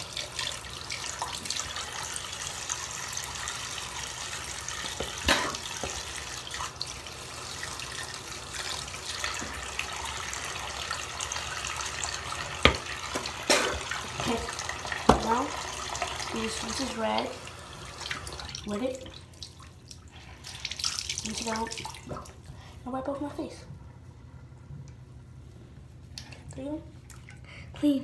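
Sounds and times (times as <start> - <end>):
tap running into sink: 4.8 - 6.1, 12.3 - 16.1.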